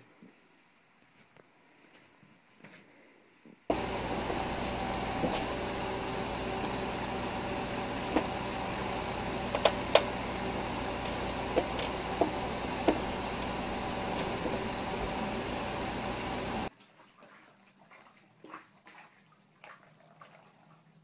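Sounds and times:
room noise hum and hiss: 0:00.0 - 0:16.7.

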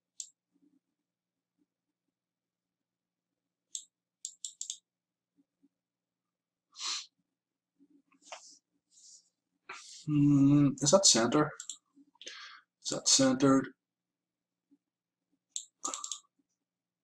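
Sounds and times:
computer mouse clicks: 0:00.1 - 0:00.4, 0:03.7 - 0:04.8, 0:11.6 - 0:11.8, 0:15.5 - 0:16.3.

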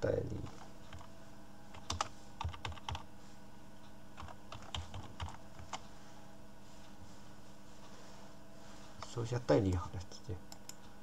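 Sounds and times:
typing on computer keyboard: 0:01.7 - 0:03.1, 0:04.2 - 0:05.8.

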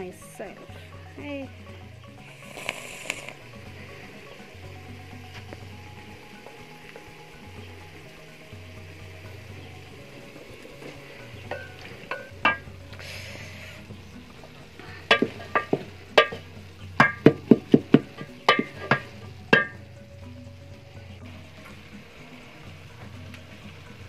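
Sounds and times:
wooden spoon knocking metal pot: 0:11.5 - 0:12.8, 0:15.0 - 0:19.9.

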